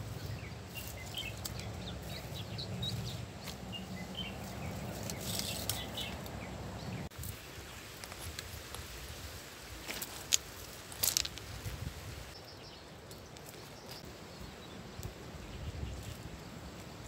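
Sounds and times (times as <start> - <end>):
steady low rumble: 0.0 - 7.1
birds chirping: 0.0 - 8.1, 12.3 - 17.0.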